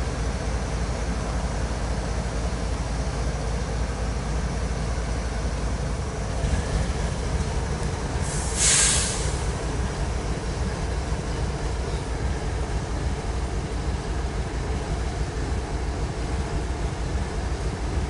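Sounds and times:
diesel locomotives rumbling: 0.0 - 18.0
loud hiss of air: 8.1 - 10.8.

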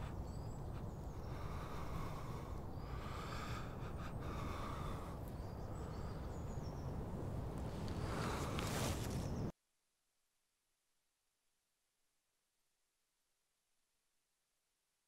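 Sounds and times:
man breathing heavily: 0.0 - 6.6, 7.9 - 9.0
faint bird chirps: 0.0 - 8.5
low wind rumble: 0.0 - 9.5.

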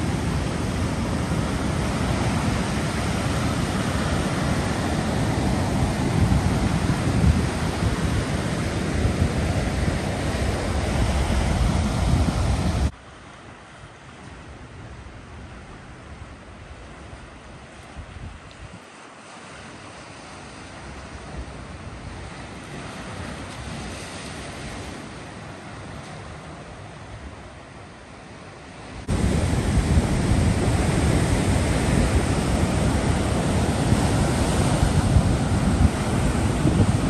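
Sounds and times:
wind on the microphone: 0.0 - 12.9, 14.5 - 18.9, 28.9 - 37.0
waves washing onto a beach: 0.0 - 37.0.

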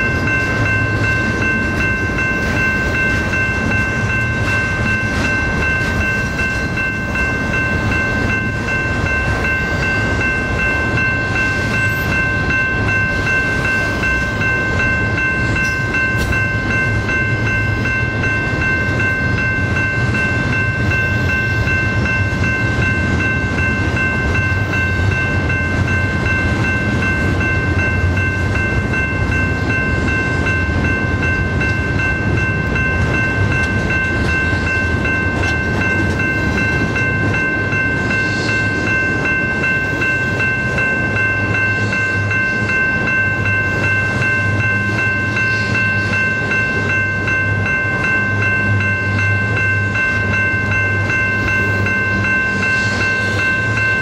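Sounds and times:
rumble of wheels on rail: 0.0 - 54.0.

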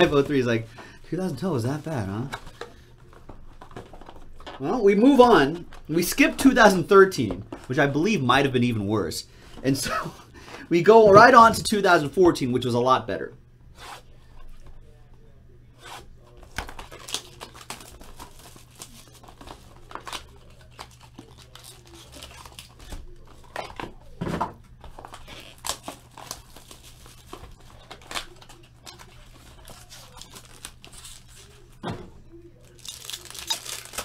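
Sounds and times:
plastic wrapper crinkling and tearing: 16.5 - 23.8, 24.8 - 31.7, 32.6 - 34.0.

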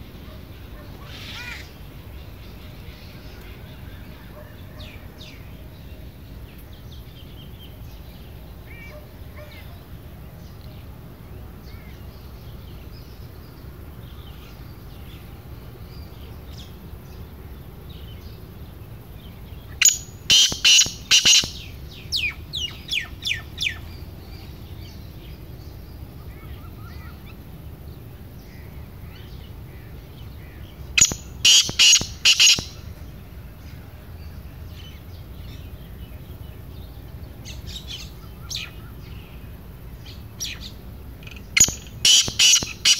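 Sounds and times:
faint bird chirps: 0.0 - 10.9, 19.2 - 27.5, 28.4 - 42.9
francolin calling: 0.0 - 42.9.

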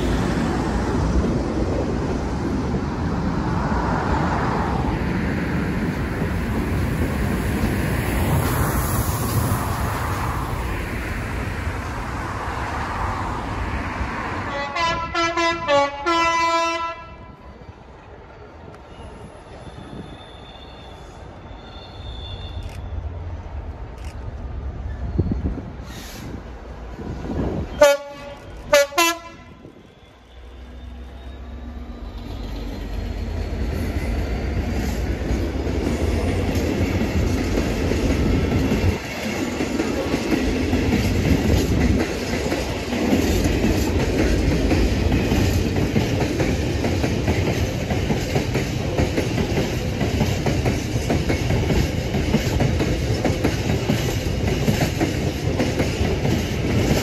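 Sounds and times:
locomotive horn blast: 14.5 - 17.4, 27.7 - 30.8.

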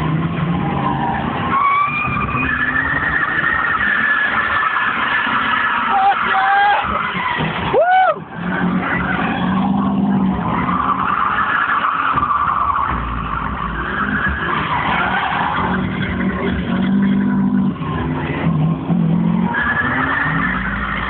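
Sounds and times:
car engine at high revs: 0.0 - 21.0
tyres screeching: 0.8 - 18.5.

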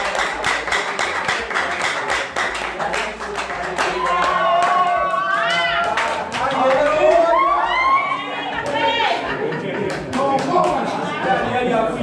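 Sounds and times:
congregation clapping: 0.0 - 7.5, 9.7 - 11.1.

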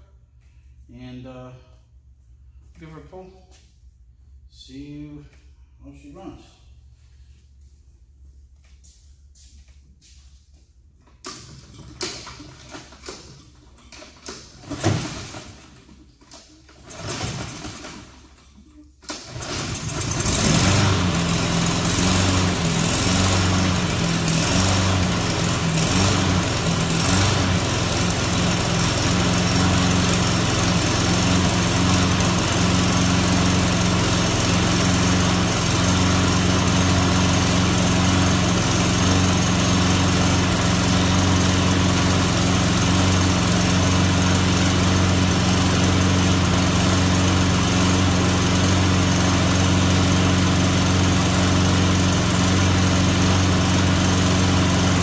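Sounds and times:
lawn mower engine running: 11.2 - 18.4, 19.0 - 55.0.

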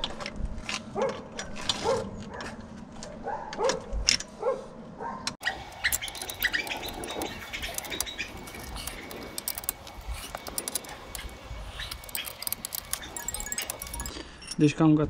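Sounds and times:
animal yelping: 4.4 - 14.1
wrench clinking on bolts: 5.4 - 14.6.

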